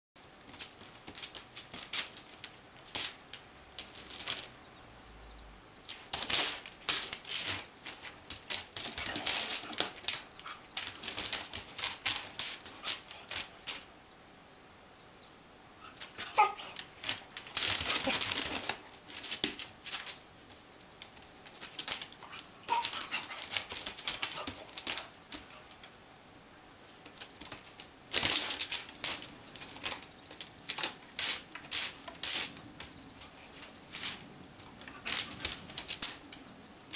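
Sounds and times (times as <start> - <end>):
dog claws scraping watermelon: 21.6 - 25.7.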